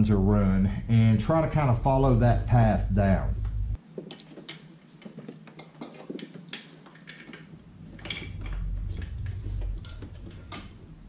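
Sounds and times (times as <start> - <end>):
low rumble: 0.0 - 3.8, 7.8 - 11.0
plastic parts clicking and rattling: 4.0 - 10.9.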